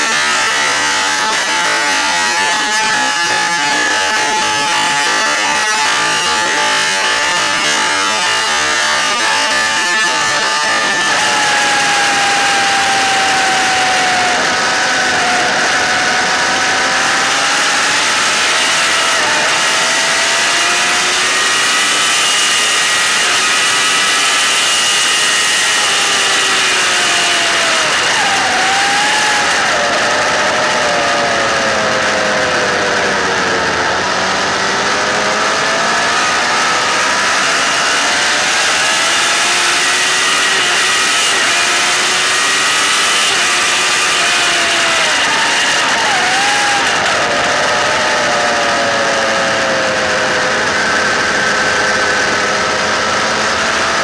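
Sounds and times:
motorcycle engine at high revs: 0.0 - 54.0.

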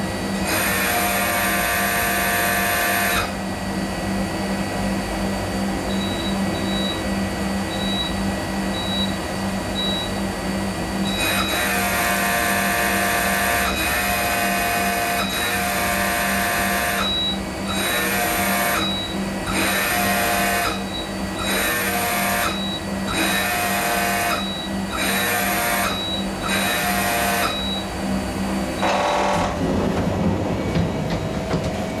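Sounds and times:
steady machine hum: 0.0 - 32.0
high multi-pitched motor whine: 11.0 - 29.6.

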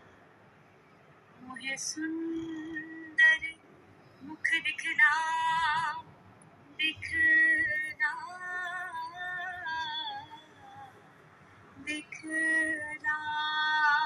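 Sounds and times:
woman singing: 1.4 - 3.6, 4.2 - 6.1, 6.8 - 11.0, 11.8 - 14.0.

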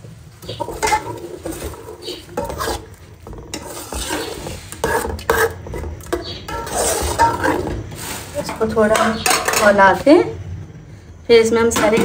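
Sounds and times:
puree sizzling in oil: 0.0 - 8.7
metal spoon scraping a pot: 0.4 - 9.9.

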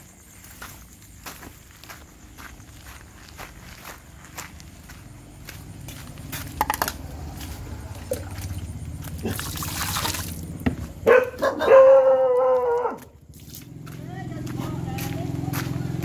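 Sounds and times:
water splashing into metal bowl: 9.2 - 10.5.

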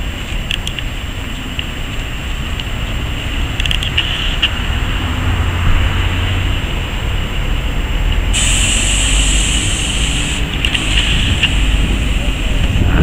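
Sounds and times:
trolleybus electric hum: 0.0 - 13.0
tyre and road rumble: 0.0 - 13.0
loud hiss: 8.3 - 13.0.

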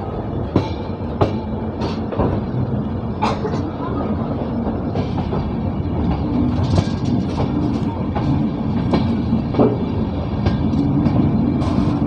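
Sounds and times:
train rumble: 0.0 - 12.0
wheels clattering over rail joints: 4.9 - 12.0.

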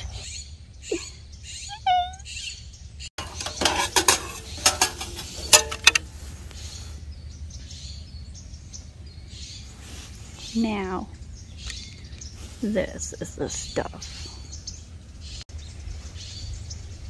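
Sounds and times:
birds chirping faintly: 0.0 - 17.0
metal tray and rack clatter: 3.2 - 6.1.

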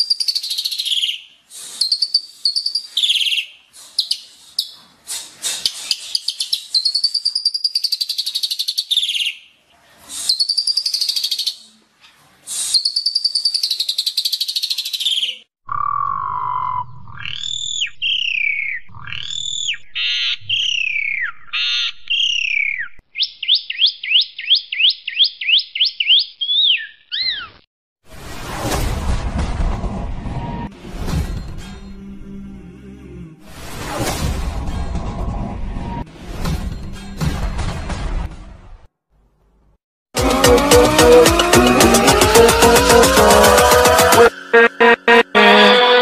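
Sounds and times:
songbird singing: 12.8 - 27.6.

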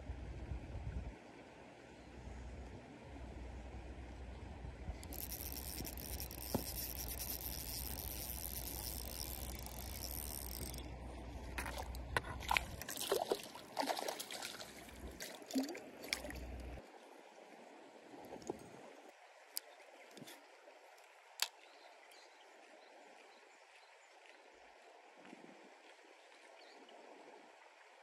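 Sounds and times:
water splashing and trickling: 4.5 - 28.0
sharp clicks and scrapes: 5.0 - 10.8.

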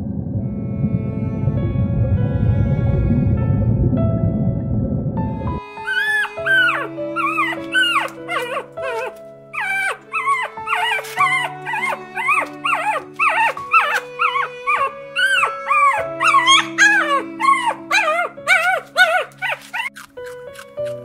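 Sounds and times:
background music with held chords: 0.4 - 21.0
puppy whining and yelping: 5.8 - 20.1.

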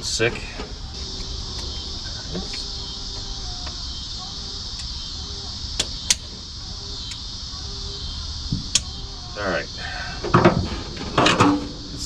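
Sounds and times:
insects trilling: 0.0 - 12.0
faint ticks: 7.0 - 7.3.

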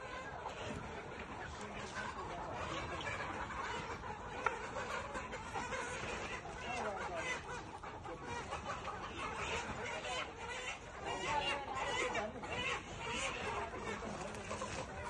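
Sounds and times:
hens clucking: 0.0 - 15.0.

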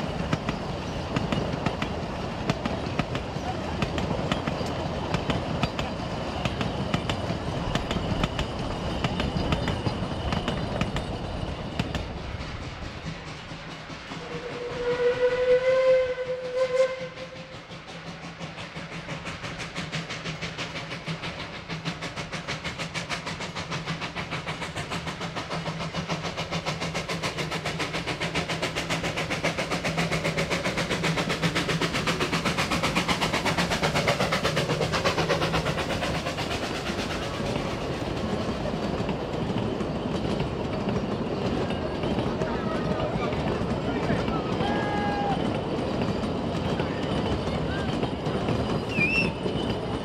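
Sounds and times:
train carriages clattering on rails: 0.0 - 15.5, 16.2 - 50.0
steam locomotive exhaust beats: 0.0 - 50.0
steam whistle blasts: 14.2 - 17.7, 48.9 - 49.4.

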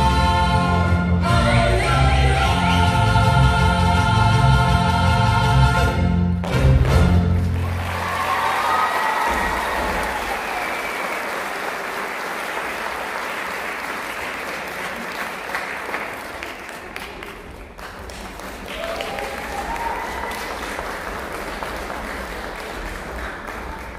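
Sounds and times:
audience applauding: 7.4 - 23.9.

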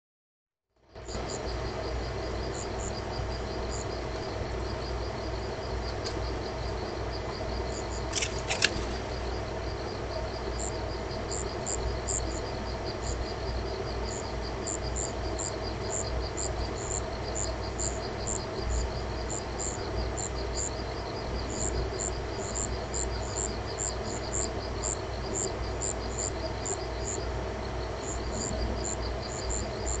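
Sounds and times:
night insects chirping: 0.8 - 30.0
sharp clicks: 8.0 - 9.0.

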